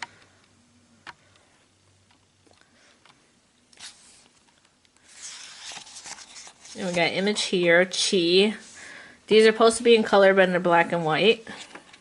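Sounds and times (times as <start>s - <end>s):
book pages rustling: 3.7s - 7.4s.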